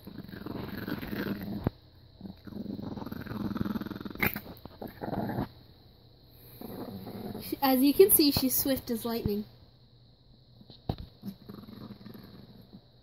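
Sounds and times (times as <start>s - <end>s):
puppy growling: 0.0s - 5.6s, 6.4s - 7.7s, 11.2s - 13.0s.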